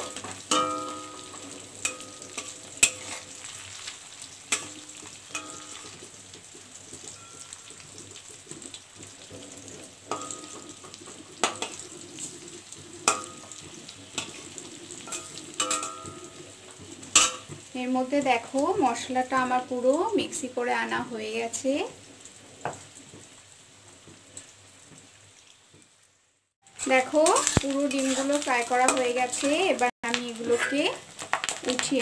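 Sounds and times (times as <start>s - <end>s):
metal spatula scraping pan: 0.0s - 6.2s, 9.2s - 17.7s, 26.8s - 29.7s
roe sizzling in hot oil: 0.0s - 32.0s.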